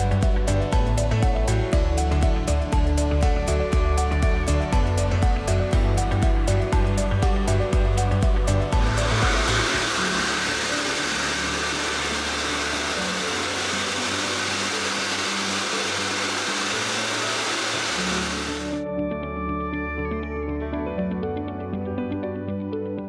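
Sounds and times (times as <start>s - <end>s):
background music: 0.0s - 23.0s
dog grooming dryer blowing: 8.7s - 18.8s.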